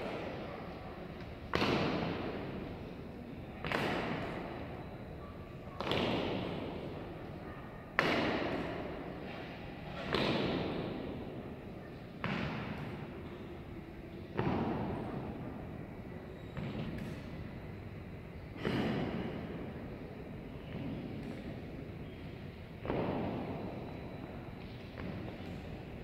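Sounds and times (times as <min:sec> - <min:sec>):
boot strikes echoing in hall: 0:01.5 - 0:02.8, 0:03.5 - 0:04.8, 0:05.7 - 0:07.2, 0:07.9 - 0:17.6, 0:18.4 - 0:26.0.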